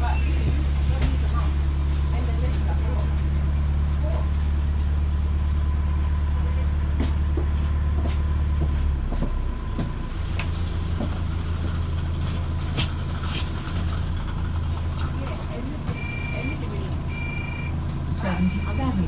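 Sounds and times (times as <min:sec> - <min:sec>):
bus drivetrain droning: 0:00.0 - 0:19.0
rattles and knocks from bus body: 0:00.4 - 0:01.4, 0:07.0 - 0:14.4.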